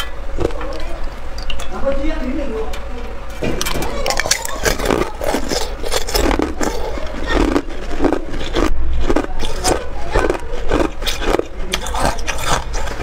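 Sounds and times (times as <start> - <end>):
ice crunched between teeth: 3.6 - 13.0.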